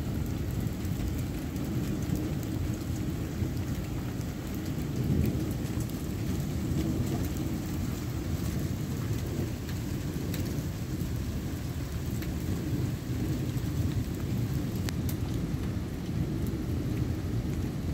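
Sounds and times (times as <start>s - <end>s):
low rumble of thunder: 0.0s - 17.9s
rain hissing: 0.0s - 17.9s
raindrops ticking close by: 0.0s - 17.9s.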